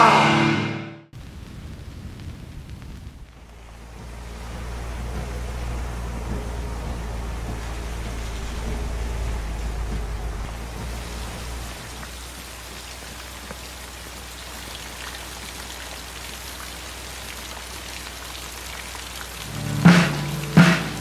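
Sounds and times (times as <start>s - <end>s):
steady rain falling: 1.1s - 21.0s
short pitched blasts: 19.4s - 21.0s.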